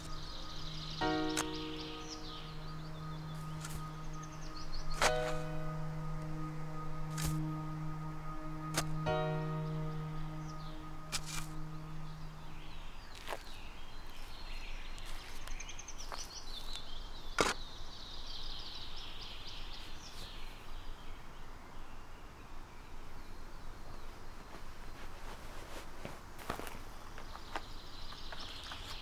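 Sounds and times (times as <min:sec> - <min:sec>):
high chirping: 0:00.0 - 0:16.9
outdoor background noise: 0:00.0 - 0:29.0
spade hitting soil: 0:03.6 - 0:03.8, 0:05.0 - 0:05.5, 0:07.1 - 0:07.4, 0:08.7 - 0:09.0, 0:11.1 - 0:11.6.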